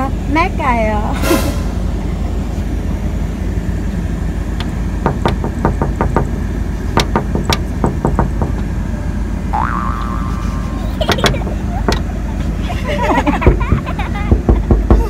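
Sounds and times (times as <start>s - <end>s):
low rumble: 0.0s - 5.2s.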